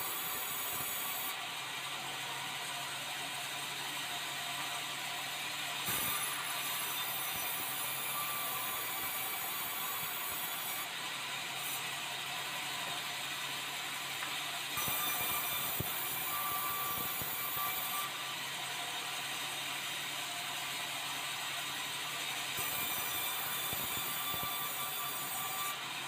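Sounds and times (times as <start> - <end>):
saw cutting wood: 0.0 - 2.0, 5.8 - 13.6, 14.2 - 20.6, 21.3 - 26.0.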